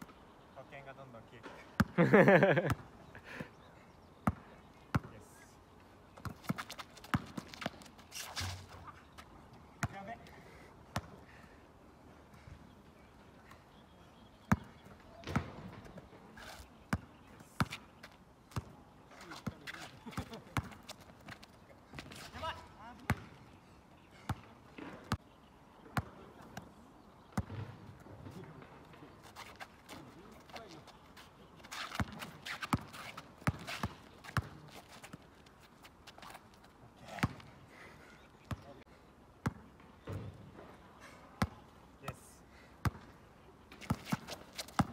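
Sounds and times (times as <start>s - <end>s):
basketball bouncing on asphalt: 1.8s - 2.9s, 4.1s - 5.2s, 6.1s - 10.3s, 10.9s - 11.2s, 14.4s - 16.1s, 16.7s - 23.5s, 25.9s - 30.8s, 31.7s - 35.3s, 37.1s - 37.6s, 38.5s - 38.7s, 39.4s - 40.7s, 41.4s - 41.6s, 42.8s - 44.9s.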